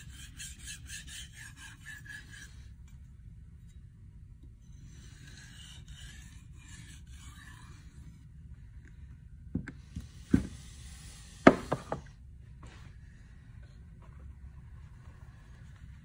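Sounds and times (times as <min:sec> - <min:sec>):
knife stroked across whetstone: 0:00.0 - 0:03.7, 0:04.7 - 0:08.2.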